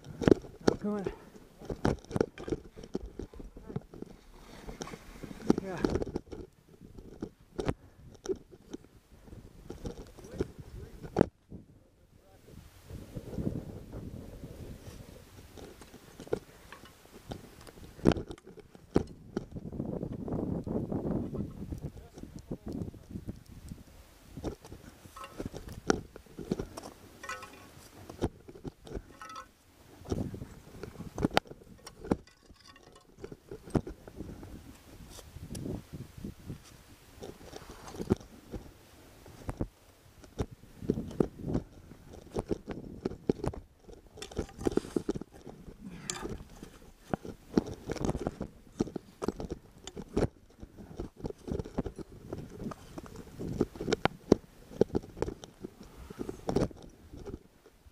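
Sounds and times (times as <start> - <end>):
metal climbing gear clinking: 0.0 - 8.9, 15.5 - 19.6, 24.5 - 34.8, 40.9 - 57.4
crampon footsteps on snow and rock: 24.4 - 35.8.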